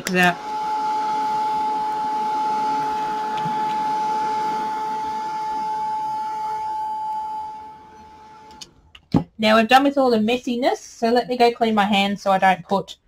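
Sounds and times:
heat gun fan whine: 0.0 - 8.8.

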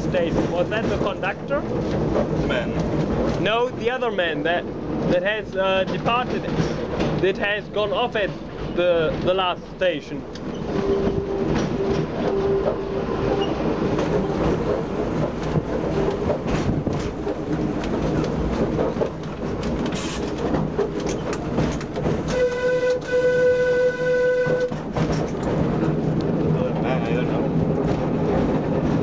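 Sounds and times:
wheels clicking on rails: 0.0 - 23.6, 24.2 - 29.0
tram rumbling on track: 0.0 - 29.0
tram horn: 10.7 - 14.5, 22.2 - 24.9.

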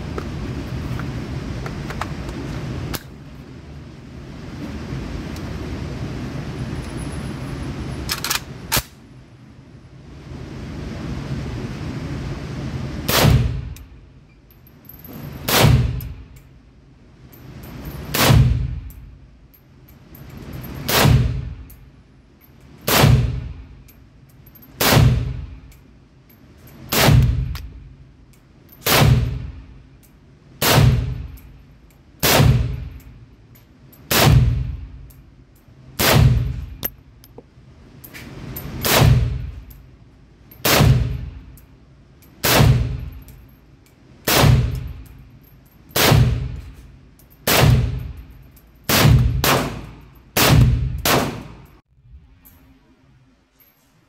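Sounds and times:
pistol shots echoing indoors: 46.0 - 46.6, 48.9 - 51.7.

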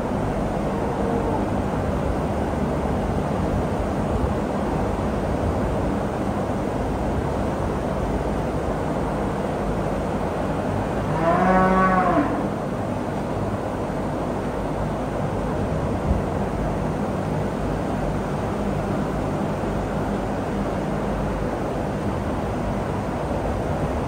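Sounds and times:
steady background noise: 0.0 - 24.0
cow mooing: 11.1 - 12.6.

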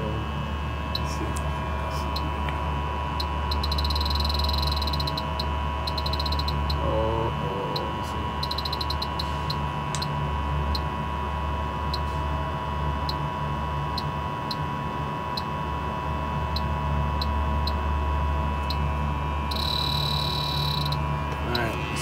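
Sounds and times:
low machinery hum: 0.0 - 22.0
continuous high tone: 0.8 - 11.0, 18.6 - 22.0
leak detector ticking: 0.9 - 1.2, 3.1 - 7.0, 7.7 - 10.9, 13.0 - 13.2, 13.9 - 14.7, 16.5 - 17.8, 18.6 - 21.1.

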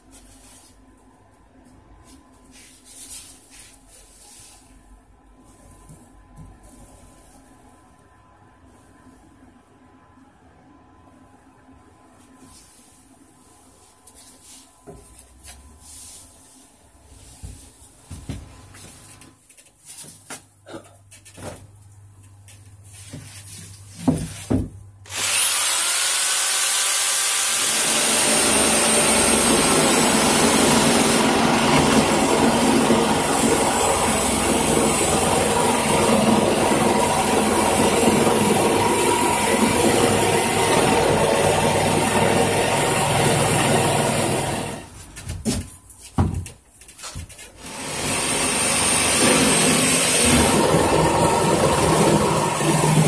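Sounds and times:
power saw cutting foam board: 25.1 - 44.9, 47.6 - 53.0.

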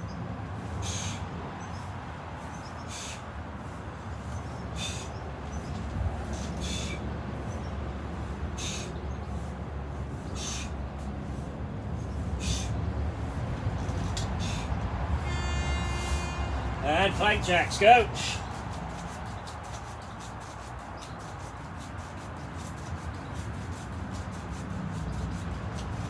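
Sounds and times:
person breathing out sharply: 14.4 - 14.8.

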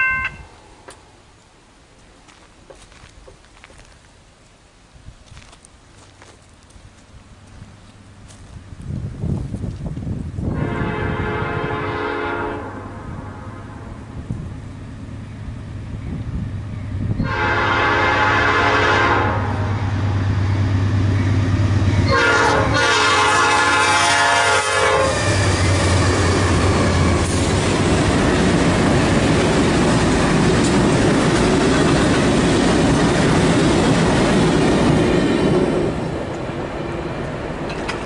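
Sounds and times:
locomotives rumbling on rails: 6.6 - 38.0
locomotive air horn: 10.5 - 12.9, 17.2 - 19.8, 22.0 - 26.6
locomotive engines droning: 12.7 - 38.0.

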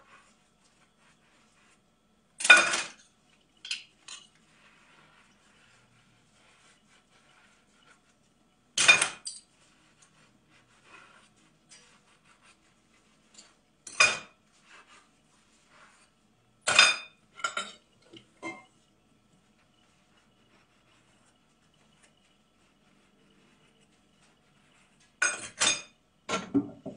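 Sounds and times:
dishes clattering in sink: 2.4 - 4.4, 8.8 - 9.5, 13.8 - 14.4, 16.6 - 18.8, 25.2 - 26.9.

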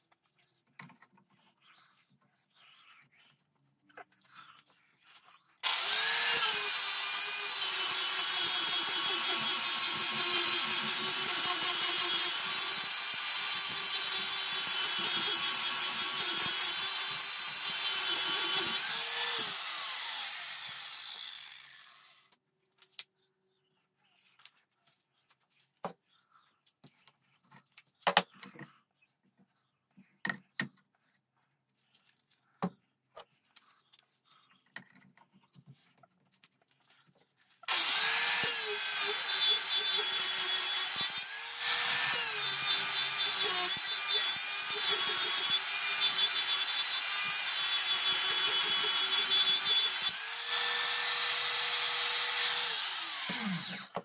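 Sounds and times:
angle grinder grinding metal: 5.6 - 22.3, 37.6 - 54.0.

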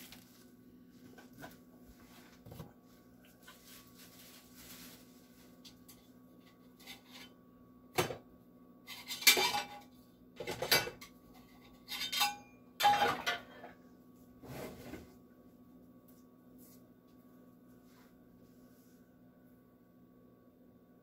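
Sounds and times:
metal pans clattering: 8.9 - 13.8.

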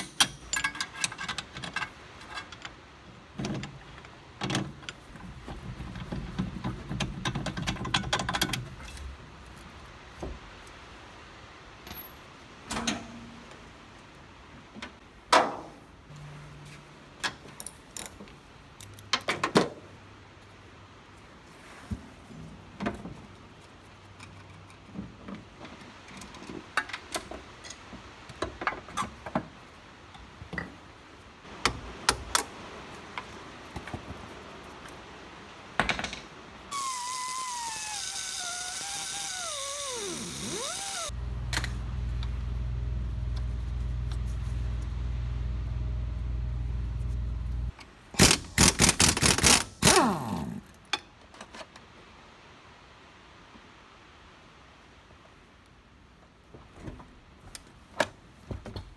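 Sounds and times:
hand tools clicking on bolts: 0.0 - 2.8, 36.7 - 41.7, 48.2 - 50.6
loud hiss with falling whine: 36.6 - 43.3
steady low hum: 38.4 - 47.7.

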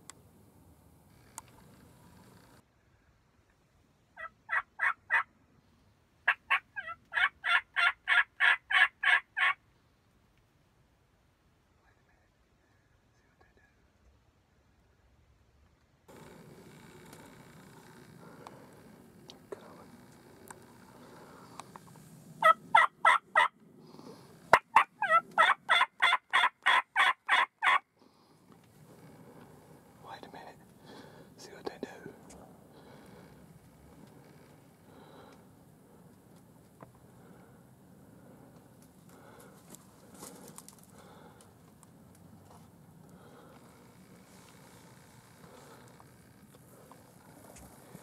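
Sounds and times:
turkey call yelps: 4.2 - 5.3, 6.3 - 9.6, 22.4 - 23.6, 24.5 - 27.8.

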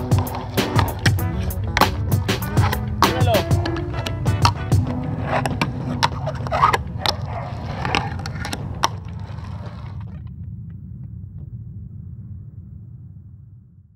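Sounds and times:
fingerboard rolling and clicking on wood: 0.0 - 10.2
steady low hum: 0.0 - 13.9.

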